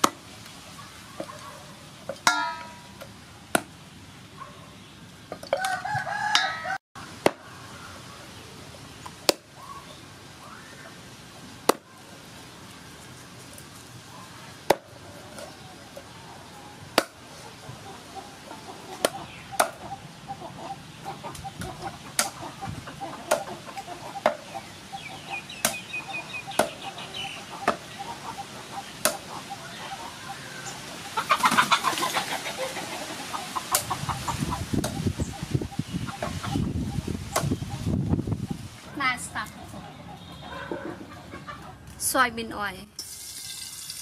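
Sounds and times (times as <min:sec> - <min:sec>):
birds calling: 0:00.5 - 0:42.3
cleaver chopping on wooden block: 0:17.0 - 0:17.2, 0:19.0 - 0:19.8.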